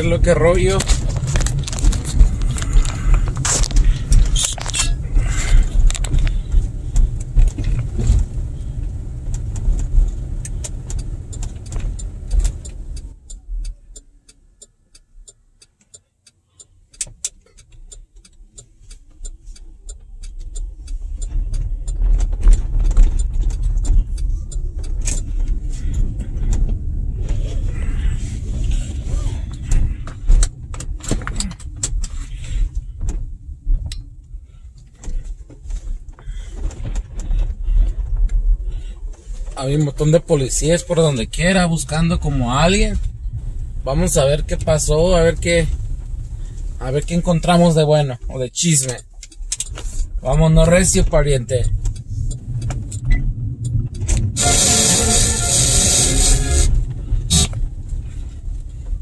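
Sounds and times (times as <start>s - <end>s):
engine and road rumble: 0.0s - 59.0s
light rattling clicks: 16.9s - 26.9s, 48.6s - 54.4s.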